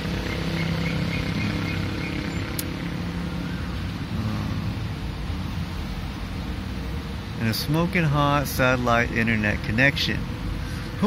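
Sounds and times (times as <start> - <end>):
sharp tick: 2.5 - 2.7.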